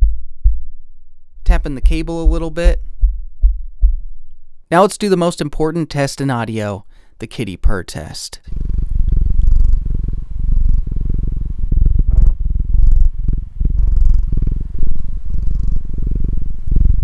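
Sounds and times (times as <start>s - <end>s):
cat purring: 8.4s - 17.0s.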